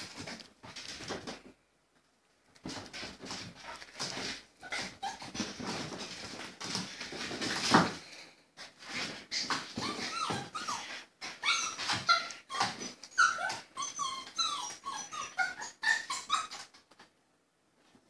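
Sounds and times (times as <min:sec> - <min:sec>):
puppies yipping and whining: 0:04.6 - 0:05.6, 0:09.8 - 0:16.7.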